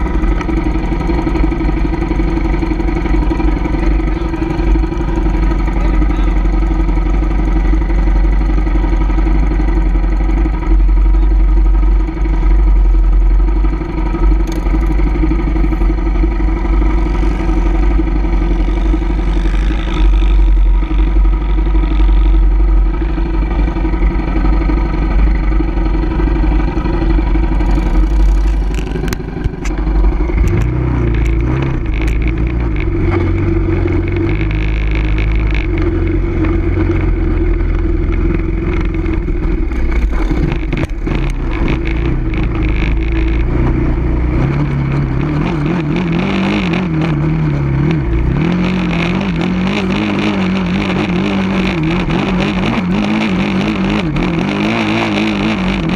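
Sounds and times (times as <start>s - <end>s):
atv engine revving: 0.0s - 55.9s
low wind rumble: 0.0s - 55.9s.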